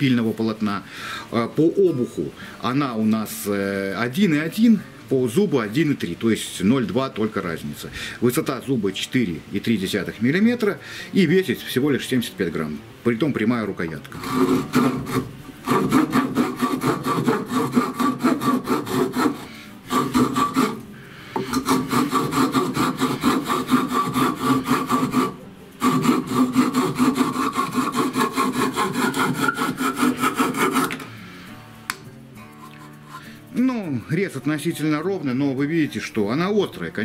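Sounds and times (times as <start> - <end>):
small saw cutting wood: 14.1 - 20.8, 21.4 - 31.1.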